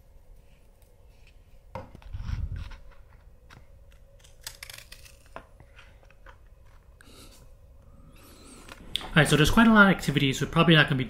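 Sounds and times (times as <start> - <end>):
scissors snipping paper: 4.0 - 5.4.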